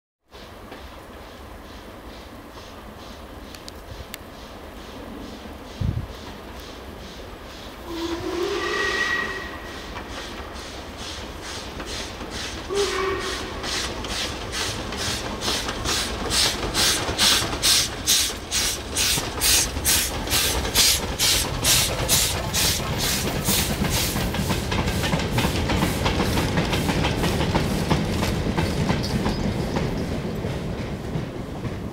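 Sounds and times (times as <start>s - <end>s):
steam locomotive exhaust chuffing: 0.3s - 31.9s
steam locomotive whistle: 7.8s - 9.9s, 12.7s - 13.8s.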